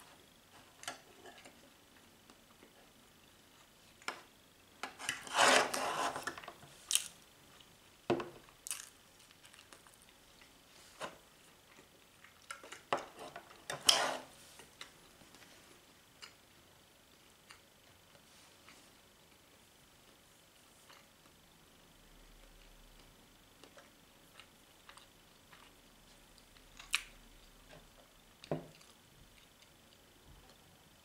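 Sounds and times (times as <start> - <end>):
cutlery scraping metal tin: 5.0 - 6.3, 13.7 - 14.3.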